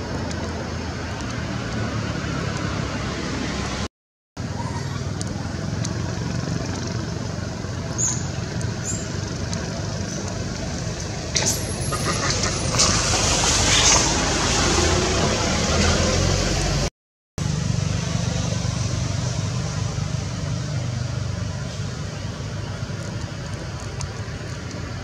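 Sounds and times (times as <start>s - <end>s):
motor traffic: 0.0s - 25.0s
vehicle engine humming: 0.0s - 25.0s
faint high ticks: 5.2s - 7.0s.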